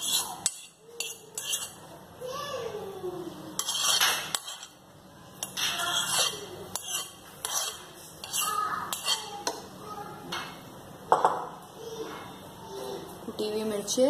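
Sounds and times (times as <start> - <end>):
metal spoon scraping plastic bowl: 0.0 - 1.8, 3.6 - 4.8, 5.4 - 9.4.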